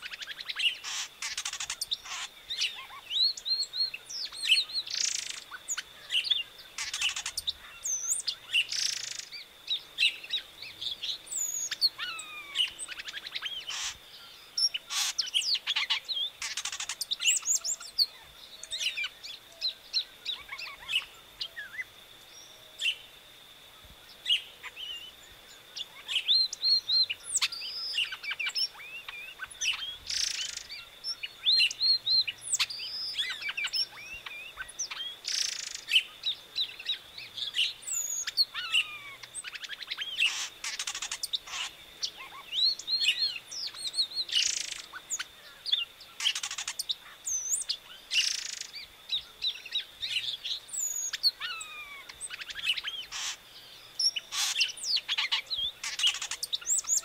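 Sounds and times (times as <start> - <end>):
bird singing whistled notes: 0.0 - 23.1, 24.1 - 57.0
faint high whine: 0.0 - 57.0.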